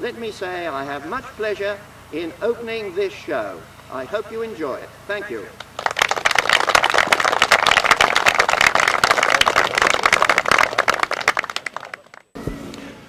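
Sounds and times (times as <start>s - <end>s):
crowd applauding: 5.6s - 12.4s.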